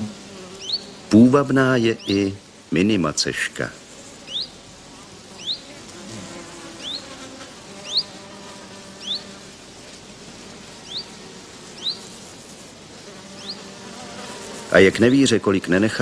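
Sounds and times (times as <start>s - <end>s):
bird chirping: 0.0s - 1.3s, 1.9s - 2.4s, 4.2s - 4.7s, 5.3s - 9.4s, 10.8s - 12.2s, 13.2s - 13.8s
insect buzzing: 0.0s - 16.0s.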